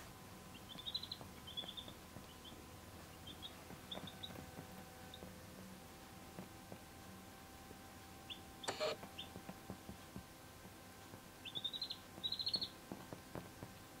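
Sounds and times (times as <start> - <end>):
chicks peeping: 0.5 - 5.4, 8.3 - 9.4, 11.4 - 13.0.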